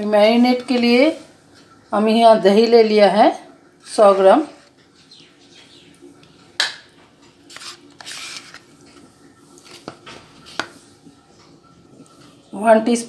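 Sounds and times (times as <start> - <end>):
wet scraping and squishing: 7.3 - 9.0.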